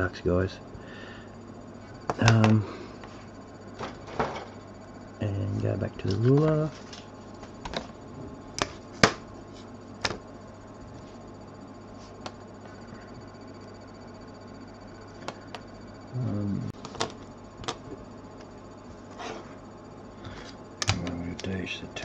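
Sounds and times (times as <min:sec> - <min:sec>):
steady low hum: 0:00.0 - 0:22.0
person murmuring: 0:16.1 - 0:16.8.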